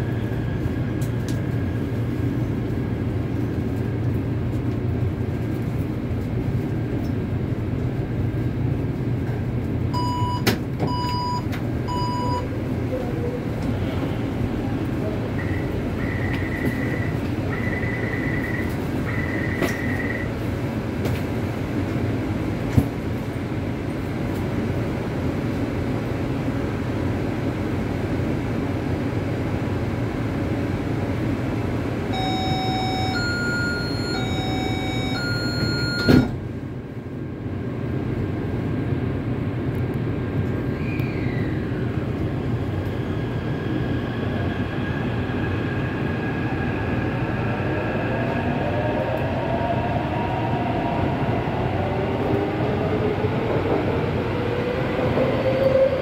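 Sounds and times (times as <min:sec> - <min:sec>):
train hum and rumble: 0:00.0 - 0:56.0
train doors shutting: 0:10.0 - 0:21.4, 0:32.1 - 0:36.4
long electronic beeps: 0:15.4 - 0:20.3, 0:32.1 - 0:36.3
two-pitch door chime: 0:32.2 - 0:36.3.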